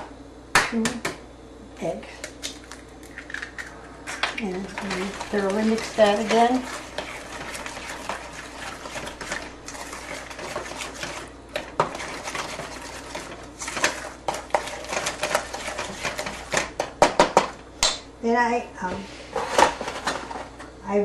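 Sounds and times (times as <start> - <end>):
utensil beating in metal bowl: 3.1 - 18.1.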